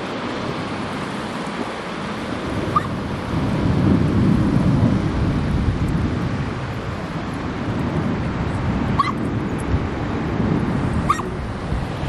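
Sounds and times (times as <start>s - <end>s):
wind buffeting microphone: 0.0s - 12.0s
short high calls: 2.7s - 3.0s, 11.0s - 11.3s.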